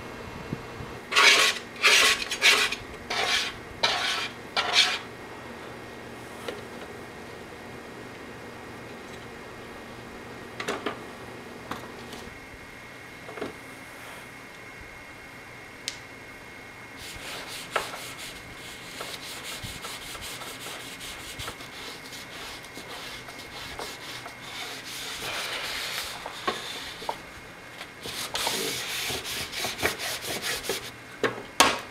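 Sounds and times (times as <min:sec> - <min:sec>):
paper towel scrubbing grill plates: 0:01.1 - 0:05.1, 0:17.0 - 0:27.2, 0:28.0 - 0:30.9.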